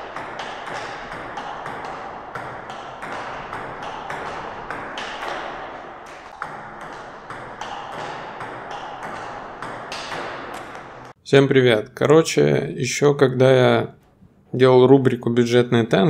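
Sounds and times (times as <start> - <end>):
table tennis ball bouncing on table: 0.0 - 11.2
table tennis ball hitting rackets: 0.0 - 11.2.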